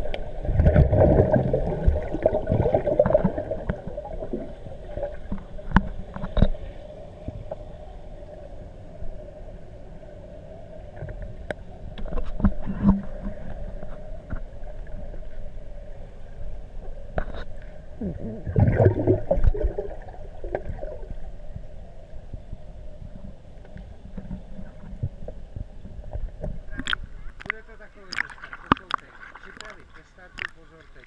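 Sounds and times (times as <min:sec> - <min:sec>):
water gurgling: 0:00.0 - 0:31.0
underwater clicks and knocks: 0:05.3 - 0:06.6, 0:11.0 - 0:14.5, 0:23.1 - 0:30.6.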